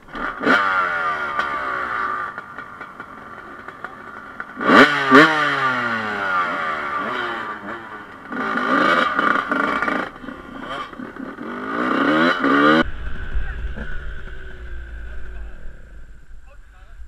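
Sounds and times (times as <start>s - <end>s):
dirt bike engine revving: 0.0s - 16.5s.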